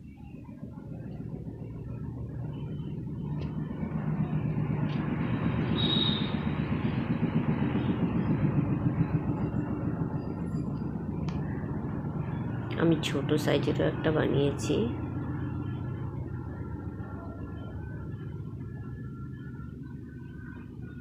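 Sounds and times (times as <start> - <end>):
passing vehicle rumble: 0.0 - 21.0
short high squeal: 5.8 - 6.4.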